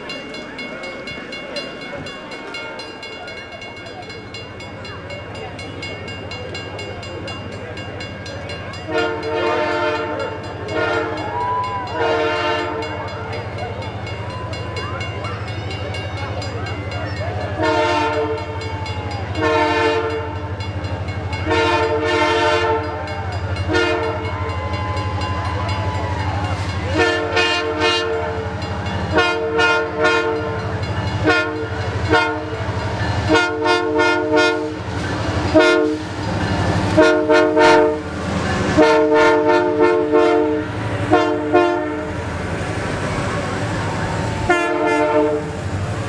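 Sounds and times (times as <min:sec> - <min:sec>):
locomotive low rumble: 0:03.2 - 0:46.0
locomotive air horn blasts: 0:08.8 - 0:13.2, 0:17.6 - 0:18.7, 0:19.3 - 0:20.6, 0:21.4 - 0:23.0, 0:23.6 - 0:24.6, 0:26.5 - 0:36.2, 0:36.9 - 0:42.3, 0:44.4 - 0:45.6.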